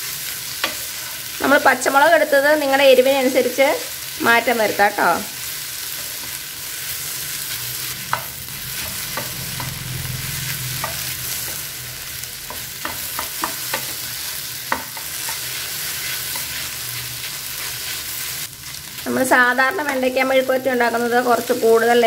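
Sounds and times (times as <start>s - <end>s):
vegetables sizzling in a pan: 0.0s - 22.0s
spatula scraping a pan: 5.8s - 19.0s.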